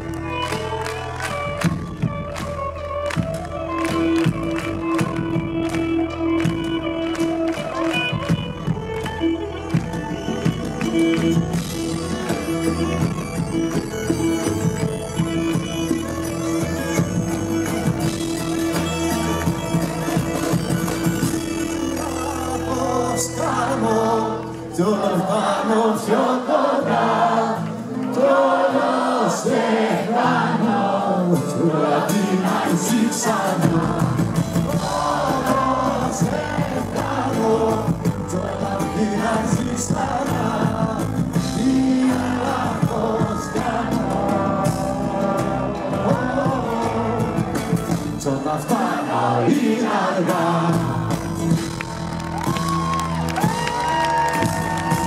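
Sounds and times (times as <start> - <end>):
bass guitar: 0.0 - 25.0, 31.3 - 49.3, 50.3 - 55.0
live band playing folk-rock: 0.0 - 55.0
person singing: 9.8 - 51.8.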